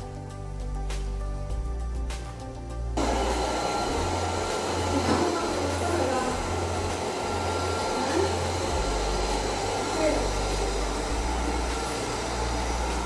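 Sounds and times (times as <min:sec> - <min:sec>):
robot vacuum whirring: 0:03.0 - 0:13.0.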